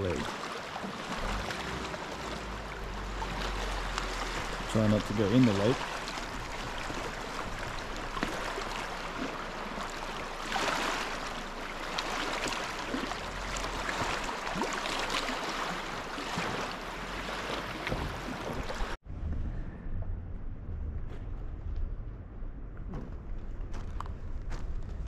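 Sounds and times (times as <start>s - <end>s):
lake water lapping at shore: 0.0s - 19.0s.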